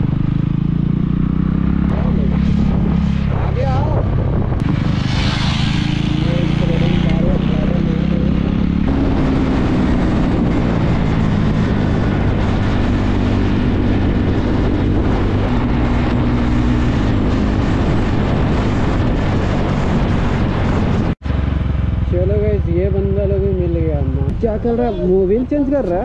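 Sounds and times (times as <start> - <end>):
motorcycle engine accelerating: 0.0 - 26.0
wind rush over microphone: 1.4 - 26.0.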